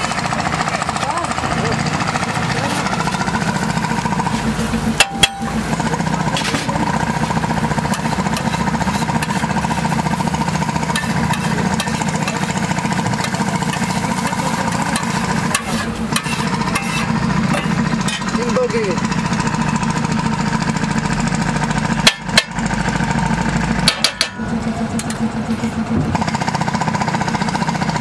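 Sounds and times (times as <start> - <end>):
pulsing mechanical drone: 0.0 - 28.0
metal spatula scraping iron pan: 2.7 - 18.4
food scraped into steel bowl: 6.4 - 12.5, 14.9 - 17.1.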